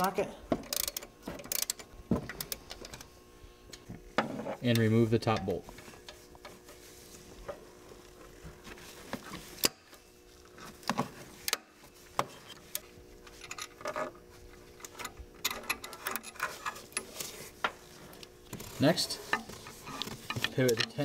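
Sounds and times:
ratchet clicking: 0.7s - 1.8s.

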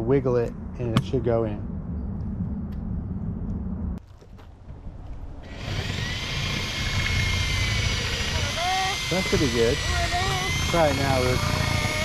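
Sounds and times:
low rumble: 0.0s - 12.0s
motor drone with high whine: 5.3s - 12.0s.

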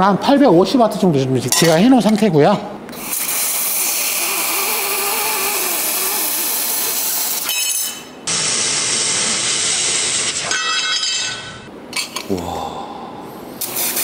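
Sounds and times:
laser cutter hissing through metal: 8.3s - 10.4s, 13.6s - 14.0s.

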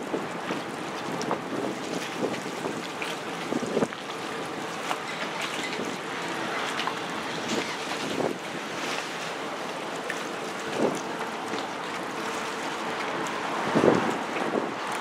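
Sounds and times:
wind buffeting microphone: 0.0s - 4.8s, 7.3s - 8.8s, 13.4s - 15.0s
water rushing against hull: 0.0s - 15.0s.

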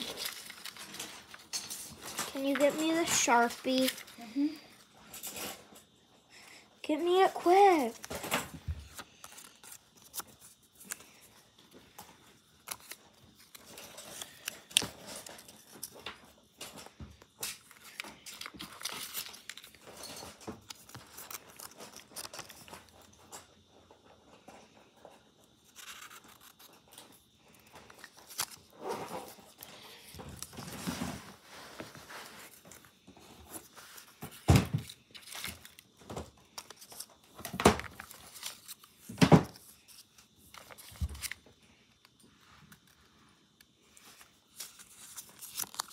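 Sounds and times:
paper rustling: 0.0s - 4.8s, 6.9s - 16.8s, 17.4s - 23.2s, 25.6s - 41.4s, 43.8s - 45.9s.

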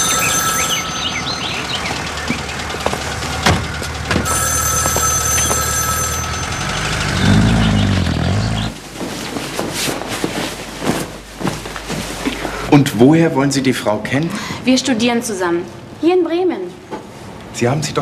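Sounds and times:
vehicle engine running: 0.0s - 9.0s
street traffic: 0.0s - 9.5s.

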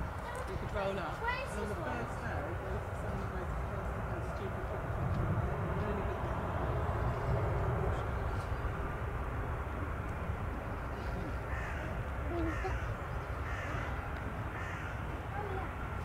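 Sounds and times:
steady low rumble: 0.0s - 16.0s
crows cawing: 10.9s - 15.7s.

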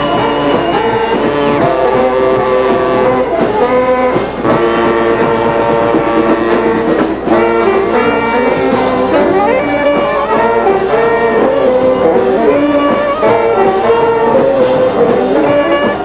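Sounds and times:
saxophones playing a tune: 0.0s - 16.0s
string band playing: 0.0s - 16.0s.

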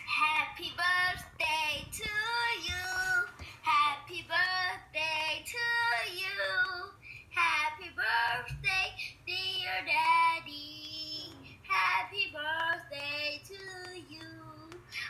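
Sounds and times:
child singing: 0.1s - 15.0s.

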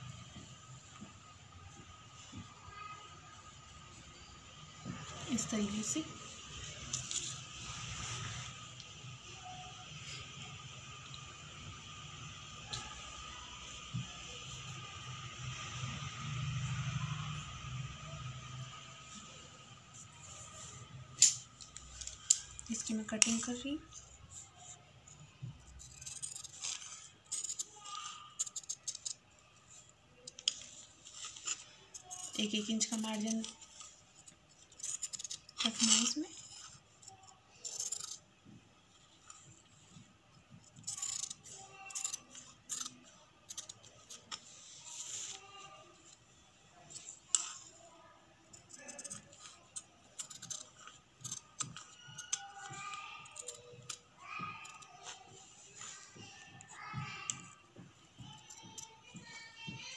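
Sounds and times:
scissors snipping paper: 25.6s - 29.3s, 30.3s - 38.2s, 40.7s - 44.5s, 48.5s - 56.0s.

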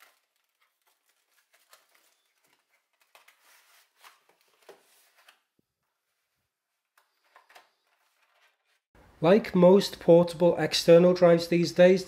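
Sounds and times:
packaging rustling and crinkling: 0.0s - 5.4s.

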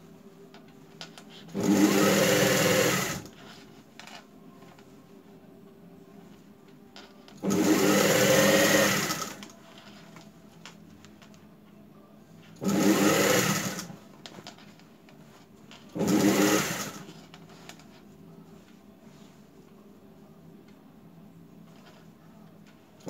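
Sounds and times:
sewing machine stitching: 1.3s - 3.4s, 7.4s - 9.5s, 12.6s - 14.0s, 15.8s - 17.3s.

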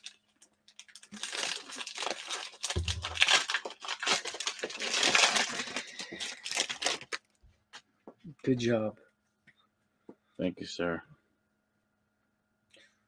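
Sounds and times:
plastic wrapper crinkling and tearing: 0.0s - 7.4s.

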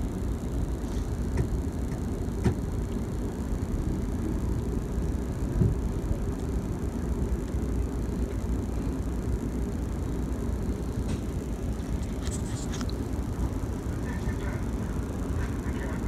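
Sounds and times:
train car rumble: 0.0s - 16.0s.

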